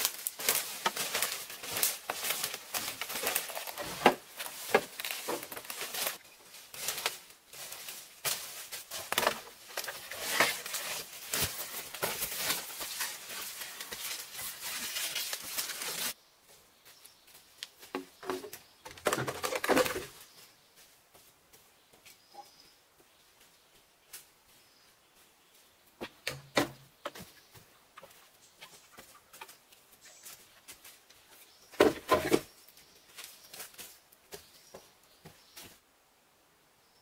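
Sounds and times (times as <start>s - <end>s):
dry leaves crackling and rustling: 0.0s - 16.2s.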